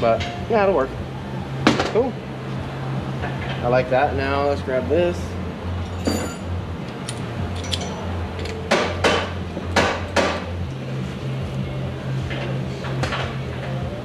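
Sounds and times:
steady low hum: 0:00.0 - 0:14.0
tools clanking on metal: 0:05.8 - 0:10.5.

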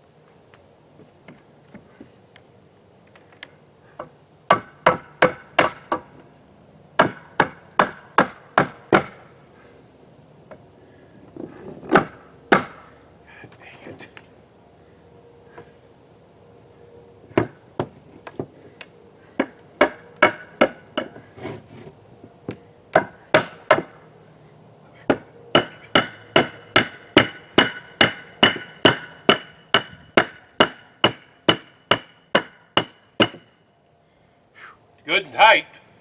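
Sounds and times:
hammer driving nails into wood: 0:11.8 - 0:12.9.

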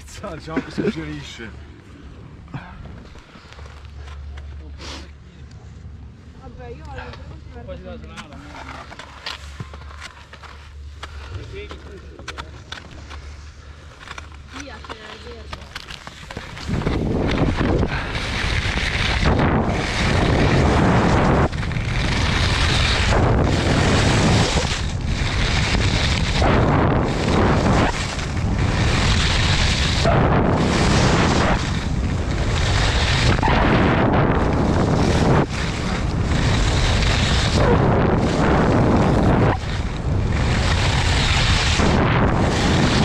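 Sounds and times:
skis scraping icy snow: 0:08.0 - 0:43.0
wind rushing over microphone: 0:15.7 - 0:43.0.

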